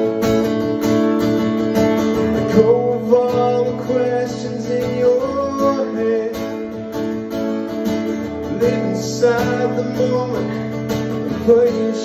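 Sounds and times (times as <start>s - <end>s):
acoustic guitar strumming: 0.0s - 12.0s
man singing: 2.4s - 7.2s, 8.1s - 12.0s.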